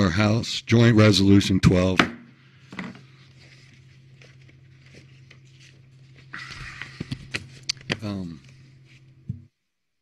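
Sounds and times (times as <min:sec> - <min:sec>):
low electrical hum: 0:00.0 - 0:10.0
papers rustling: 0:02.8 - 0:09.1.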